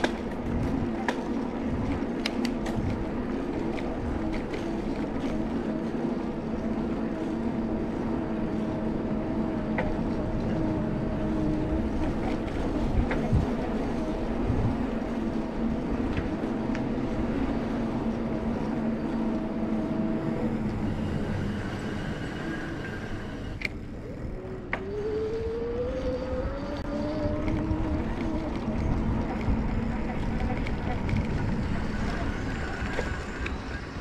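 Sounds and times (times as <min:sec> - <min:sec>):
low motor hum: 0:00.0 - 0:34.0
road noise: 0:00.0 - 0:34.0
wind rush: 0:00.0 - 0:34.0
motor whine rising in pitch: 0:18.2 - 0:29.0.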